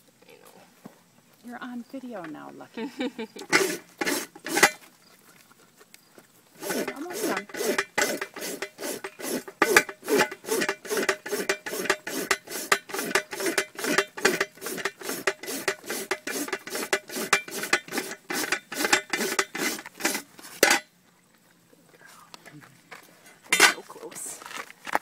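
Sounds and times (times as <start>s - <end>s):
hoof rasp filing a hoof: 3.4s - 4.9s, 6.6s - 20.8s.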